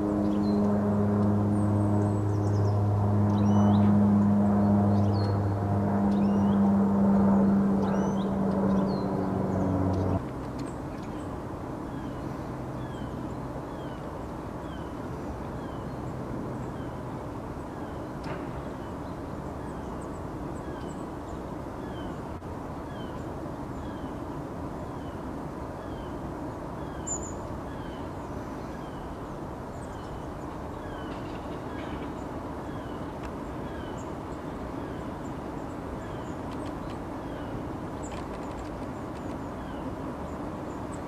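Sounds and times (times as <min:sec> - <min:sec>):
low background rumble: 0:00.0 - 0:23.2.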